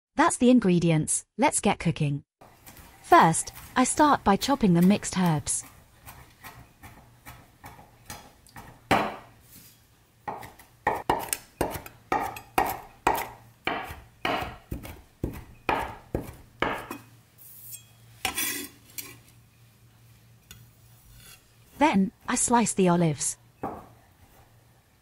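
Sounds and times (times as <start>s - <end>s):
knife chopping on wooden board: 4.6s - 9.3s, 10.3s - 17.0s.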